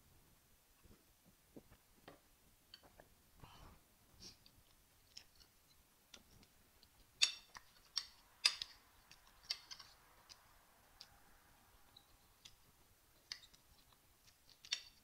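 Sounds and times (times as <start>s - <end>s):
soft chewing: 4.2s - 15.0s.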